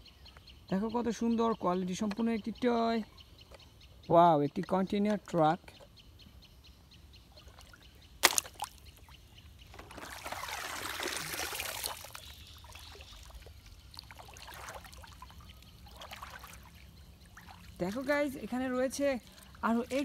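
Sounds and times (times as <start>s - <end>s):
puddle water splashing: 7.4s - 9.1s, 9.7s - 20.0s.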